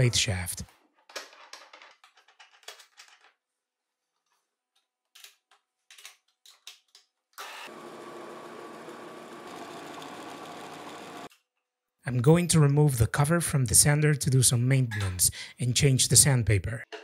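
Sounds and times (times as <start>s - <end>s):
lathe motor whirring: 7.4s - 11.3s.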